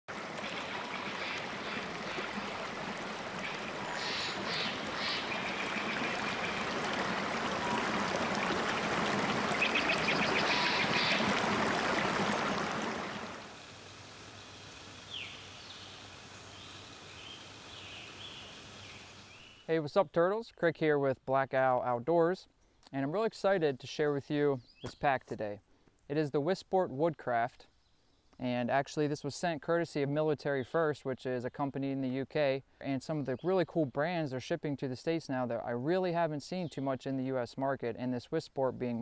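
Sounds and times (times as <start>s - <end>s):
stream water rushing: 0.1s - 19.3s
quiet forest background: 0.1s - 39.0s
bird calling: 0.3s - 13.2s, 14.5s - 19.7s.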